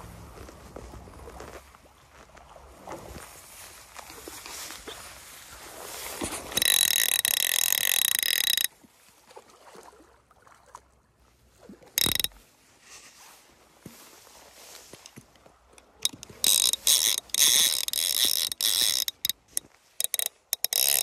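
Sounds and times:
fly reel drag buzzing: 6.2 - 8.7, 12.0 - 12.4, 16.0 - 21.0.

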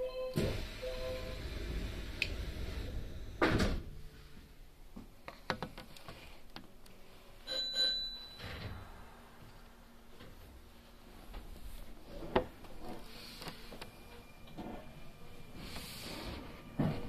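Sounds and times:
train rumble: 0.5 - 3.5.

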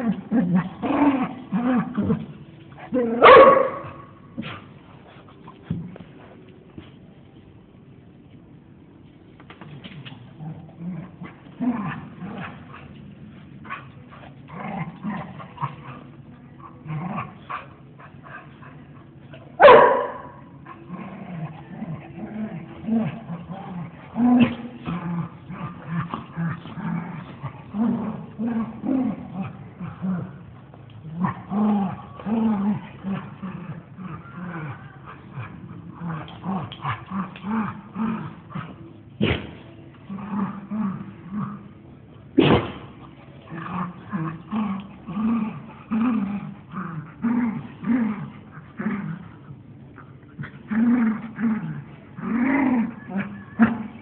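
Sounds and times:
dogs growling: 0.0 - 6.4, 9.9 - 54.0
dog barking: 3.2 - 3.9, 19.6 - 20.4.

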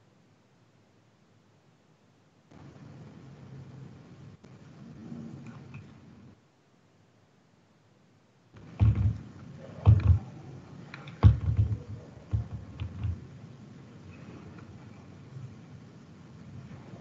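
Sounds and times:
handling knocks on microphone: 8.6 - 10.3, 11.2 - 13.2.

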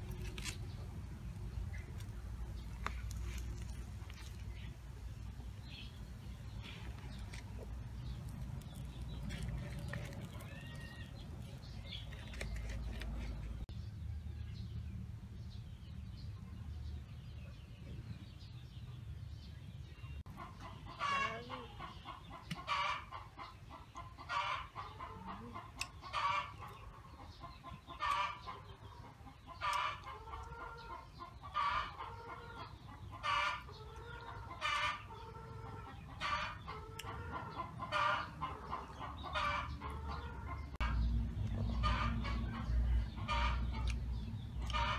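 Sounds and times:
chicken clucking: 20.3 - 44.9.

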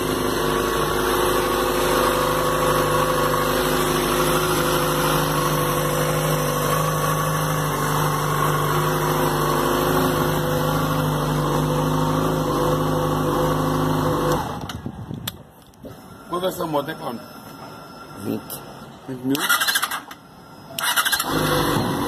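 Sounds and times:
motorcycle engine idling: 0.0 - 14.0.

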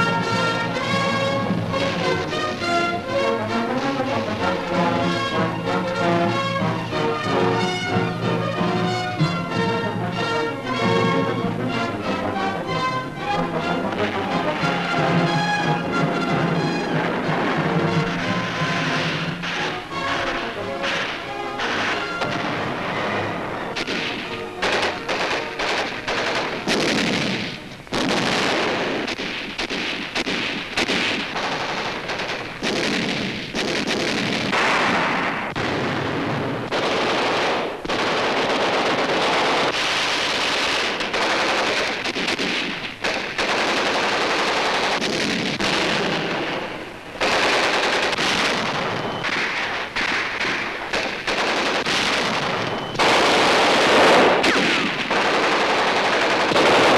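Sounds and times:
music: 0.0 - 28.9, 45.9 - 49.4, 52.4 - 54.6
machine-gun and rifle fire: 23.8 - 56.9.

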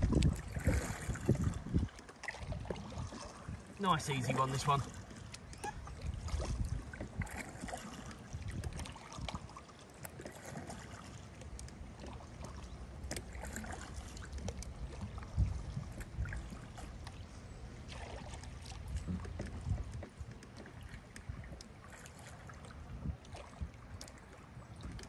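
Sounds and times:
paddle knocking on kayak: 0.0 - 3.3, 17.9 - 22.3
kayak paddle splashes: 0.0 - 25.0.

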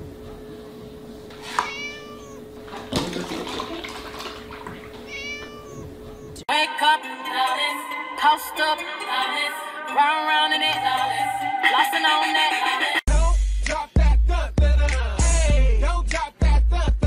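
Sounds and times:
kitten meowing: 1.4 - 2.4, 5.0 - 6.4
milk pouring and splashing: 2.6 - 5.5.

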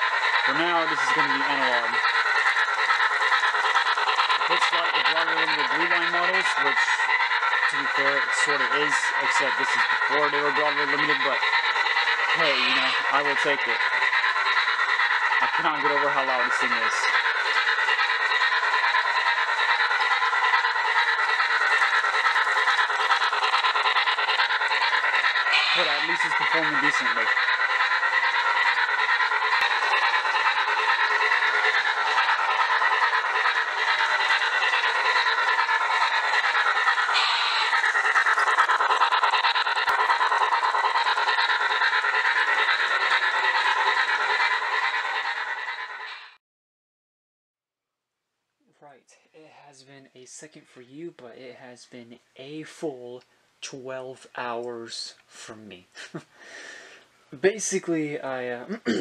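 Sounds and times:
model train motor whirring: 0.0 - 46.4.

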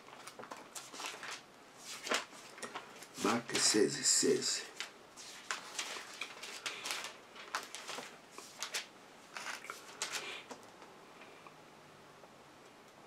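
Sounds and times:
book pages rustling: 0.0 - 10.6.

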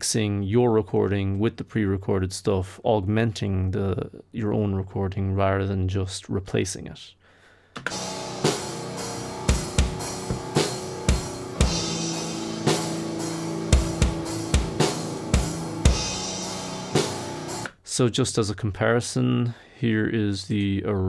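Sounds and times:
drum kit playing: 7.8 - 17.8
held chords: 7.9 - 17.7.

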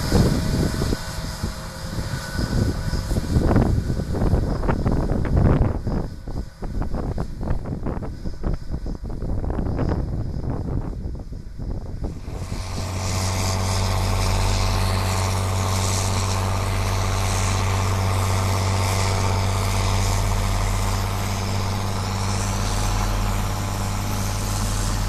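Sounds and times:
tractor diesel engine running: 0.0 - 7.8, 11.9 - 25.0
wind on microphone: 0.0 - 25.0.

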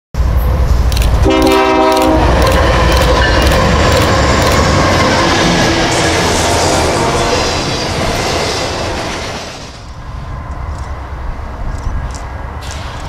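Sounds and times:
low train rumble: 0.2 - 13.0
train wheels clicking: 0.7 - 11.0, 11.6 - 13.0
train air horn: 1.2 - 3.8.

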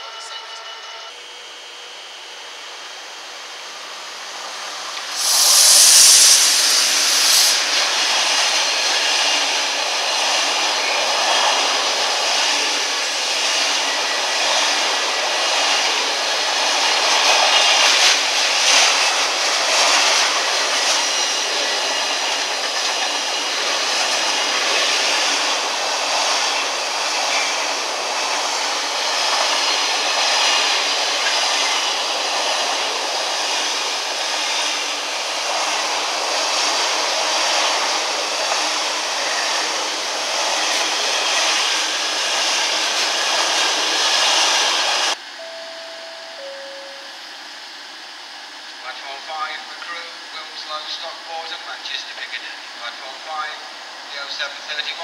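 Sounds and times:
freight train passing: 0.0 - 55.0.

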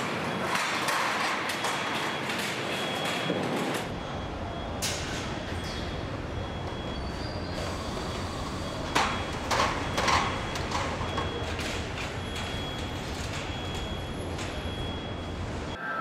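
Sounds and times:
steady industrial hum: 0.0 - 15.9.

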